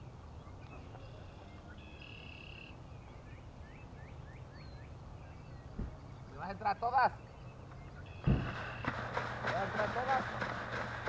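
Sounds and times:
birds chirping: 0:00.0 - 0:11.0
bird calling: 0:00.4 - 0:11.0
low steady rumble: 0:07.3 - 0:11.0.

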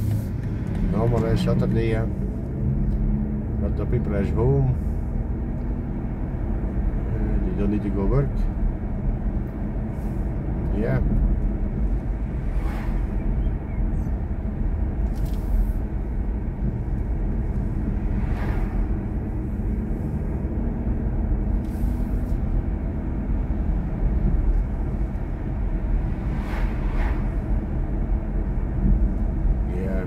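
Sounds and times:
road and tyre rumble: 0:00.0 - 0:30.0
cars whooshing past: 0:11.4 - 0:16.0, 0:16.6 - 0:29.8.

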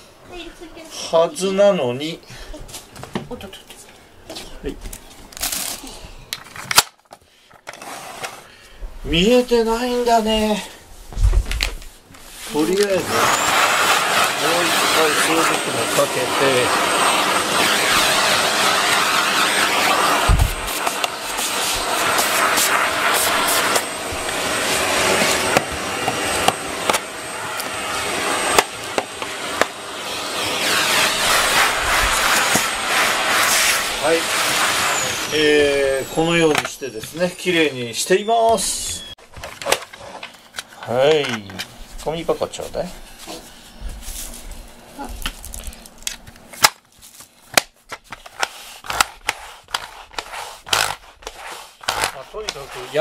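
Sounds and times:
vacuum cleaner whining: 0:12.4 - 0:40.3, 0:49.8 - 0:53.0.

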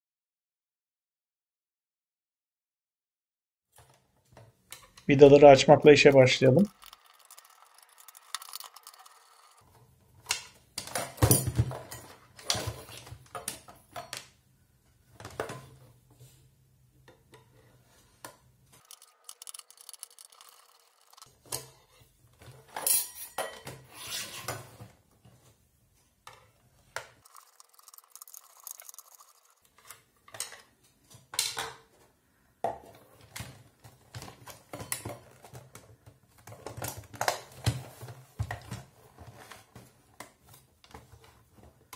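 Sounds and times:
screwdriver clicking and scraping: 0:06.7 - 0:09.6, 0:18.8 - 0:21.3, 0:27.2 - 0:30.0.

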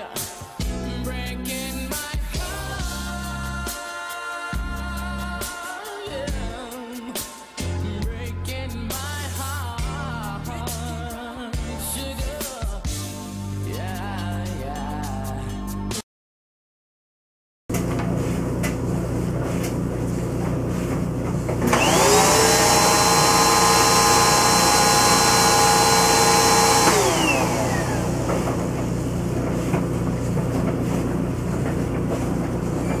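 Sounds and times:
vacuum cleaner motor whining: 0:19.7 - 0:33.0.

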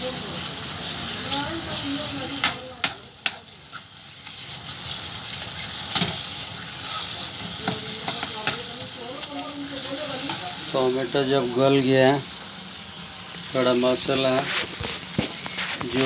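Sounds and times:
masala sizzling in a pan: 0:00.0 - 0:16.0
spoon clacking against metal pan: 0:02.4 - 0:03.5, 0:07.4 - 0:09.0.

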